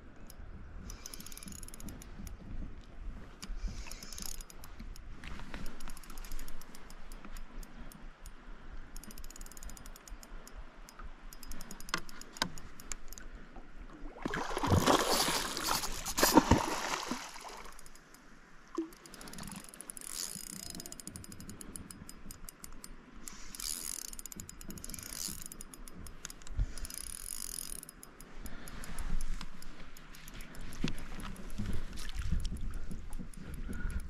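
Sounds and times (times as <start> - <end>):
fishing reel ticking: 0.1 - 2.6, 3.4 - 13.3, 17.2 - 18.2, 18.8 - 34.0
fish splashing at water surface: 14.2 - 17.8.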